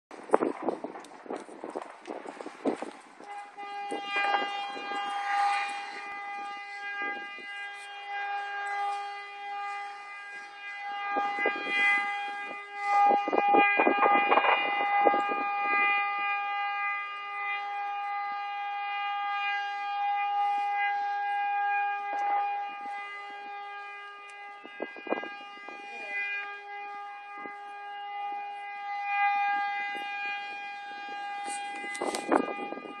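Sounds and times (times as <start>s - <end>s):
air horn long note: 2.4s - 33.0s
gunshots and fireworks bangs: 11.1s - 15.9s.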